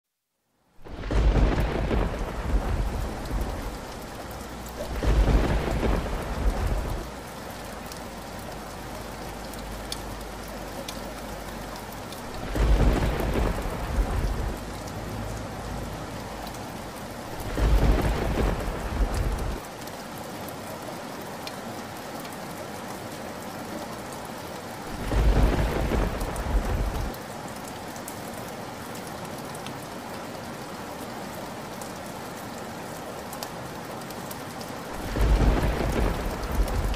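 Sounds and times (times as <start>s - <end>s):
steady rain: 0.1s - 36.9s
thunder rolling: 0.9s - 4.1s, 4.8s - 7.1s, 12.4s - 14.6s, 17.4s - 19.6s, 25.0s - 27.1s, 35.0s - 36.9s.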